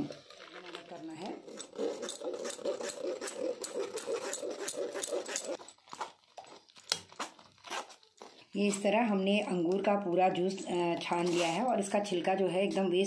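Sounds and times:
spoon scraping metal mesh strainer: 0:00.0 - 0:05.6, 0:10.5 - 0:12.0.

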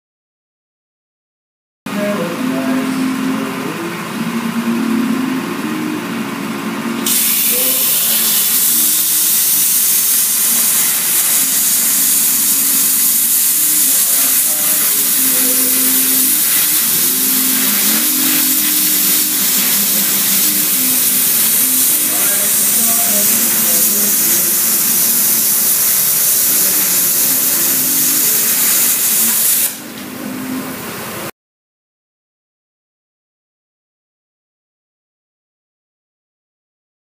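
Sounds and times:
background music: 0:02.0 - 0:07.1, 0:15.0 - 0:24.9
plasma cutter hissing: 0:07.0 - 0:29.8.

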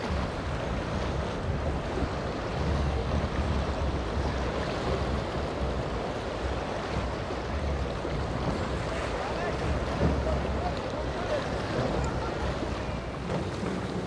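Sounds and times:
breaking waves: 0:00.0 - 0:14.0
wind rumbling on microphone: 0:00.0 - 0:14.0
boat hull crashing through chop: 0:07.8 - 0:12.0.

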